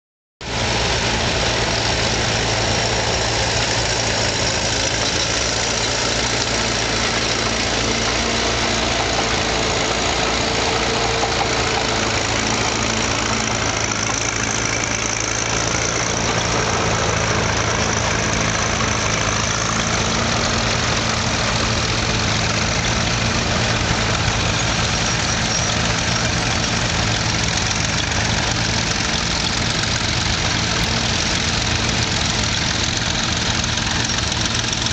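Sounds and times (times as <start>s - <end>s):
tractor engine running: 0.4s - 34.9s.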